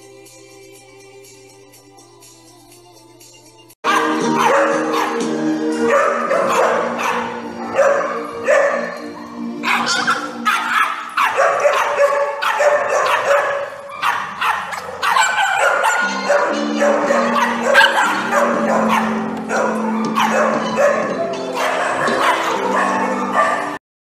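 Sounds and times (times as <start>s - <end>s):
background music: 0.0s - 23.8s
small dogs barking and yipping: 3.9s - 23.8s.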